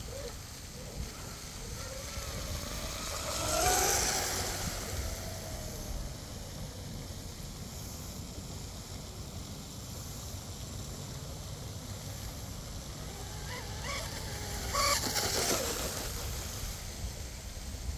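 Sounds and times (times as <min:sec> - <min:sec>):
electric motor whining: 0:00.0 - 0:07.0, 0:12.9 - 0:17.2
wind rumble on microphone: 0:00.0 - 0:09.9.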